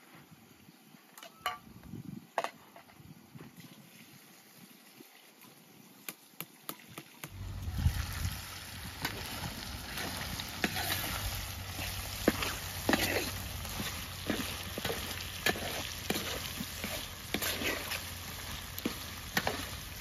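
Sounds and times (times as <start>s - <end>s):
chicken sizzling in a pan: 7.3s - 20.0s.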